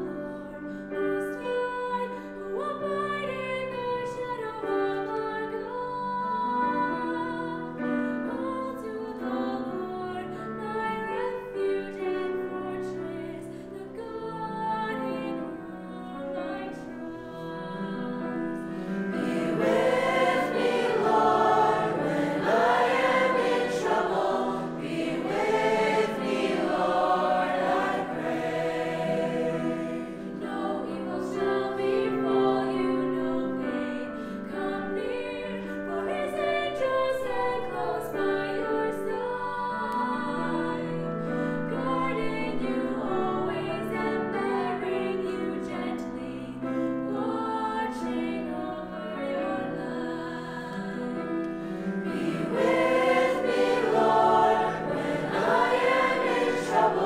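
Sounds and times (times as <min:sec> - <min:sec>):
youth choir singing: 0:16.6 - 0:33.9, 0:41.7 - 0:57.0.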